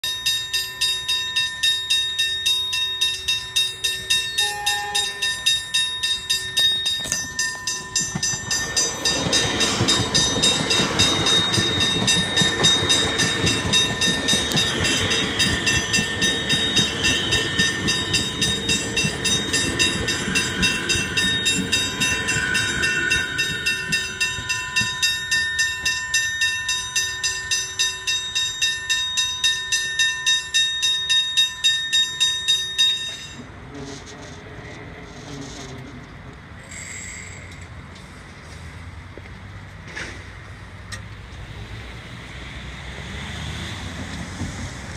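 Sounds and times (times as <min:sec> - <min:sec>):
level crossing bells ringing: 0:00.0 - 0:33.5
train rumble and wheel noise: 0:00.0 - 0:44.9.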